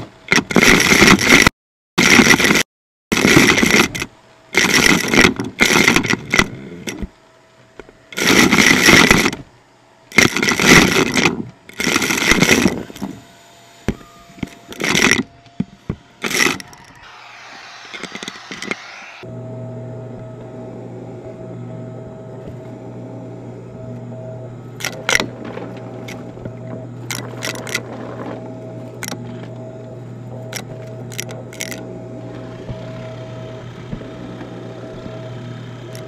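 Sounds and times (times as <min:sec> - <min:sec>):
faint steady whine: 0:03.2 - 0:36.0
vacuum suction bursts: 0:16.9 - 0:19.3
small plastic pieces clattering: 0:24.8 - 0:29.2, 0:30.6 - 0:31.8.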